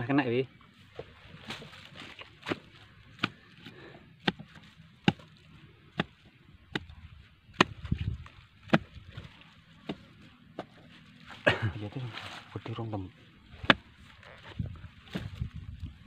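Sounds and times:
digging tool chopping into soil: 1.0 - 10.0, 13.6 - 15.6
dull thud of shifting earth: 7.5 - 10.0, 13.5 - 15.9.

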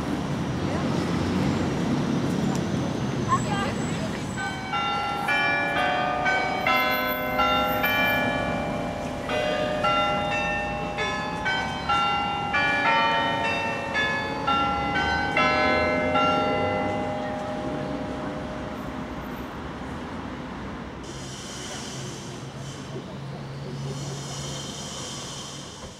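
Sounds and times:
carillon bells playing a tune: 4.4 - 18.8.

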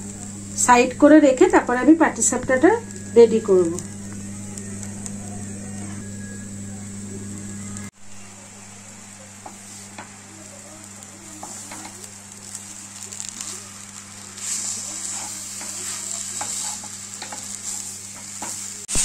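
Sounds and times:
soft sizzle in pan: 0.0 - 19.0
wooden spatula scraping pan: 11.3 - 12.6, 14.4 - 18.7.

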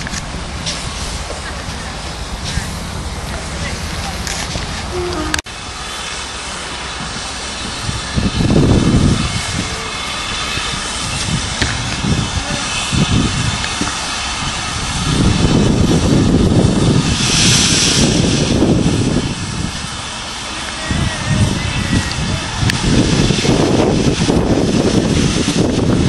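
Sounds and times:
steam hissing: 0.0 - 26.0
steam locomotive working: 0.0 - 26.0
wind buffeting on microphone: 7.0 - 26.0.

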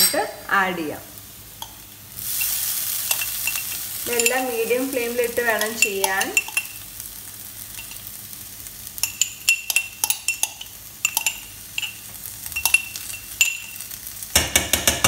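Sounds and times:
metal spoon clinking glass jar: 5.6 - 6.8, 9.0 - 13.8.

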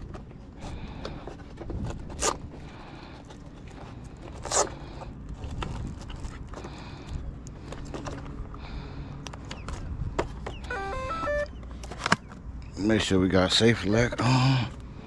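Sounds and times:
camera handling rumble: 0.0 - 8.6.

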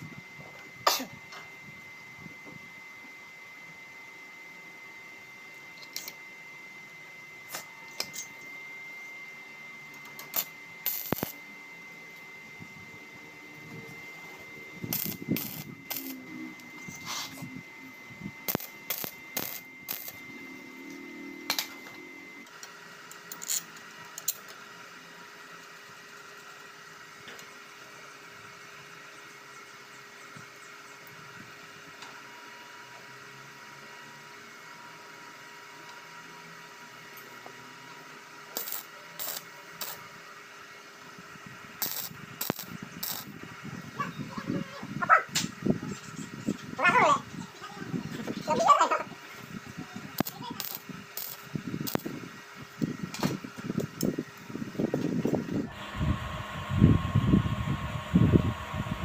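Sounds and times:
arc welder bursts: 10.0 - 11.5, 13.6 - 24.7, 38.4 - 43.7, 49.2 - 59.0.

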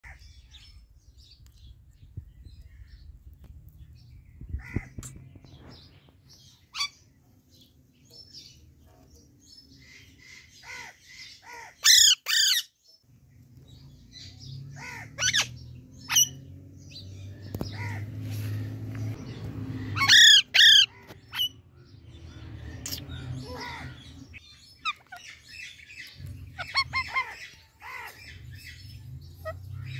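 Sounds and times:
parakeets chirping: 4.5 - 29.9
parakeets squawking harshly: 10.5 - 12.7, 14.7 - 16.4, 17.6 - 18.1, 19.8 - 21.6, 26.4 - 28.4.

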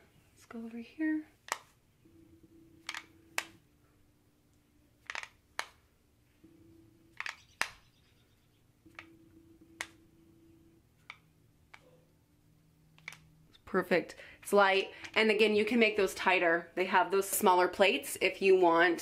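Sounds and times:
hair crimper clicking: 13.0 - 13.6.

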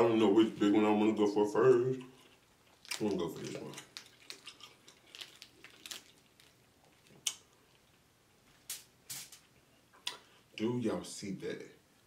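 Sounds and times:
wet chewing and mouth sounds: 2.1 - 8.0.

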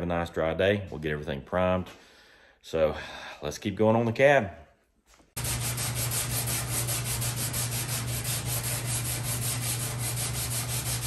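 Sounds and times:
sanding on sheet metal: 5.4 - 11.0.

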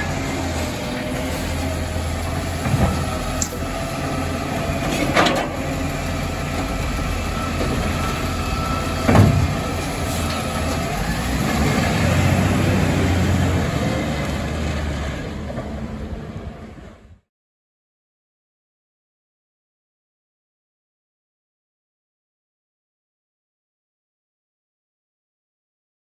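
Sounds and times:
garbage truck engine running: 0.0 - 17.2
bin knocking against truck: 9.0 - 9.6.

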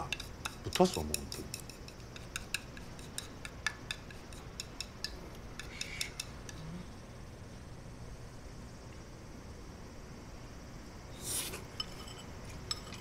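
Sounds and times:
chopsticks clicking on bowls: 0.0 - 6.6.

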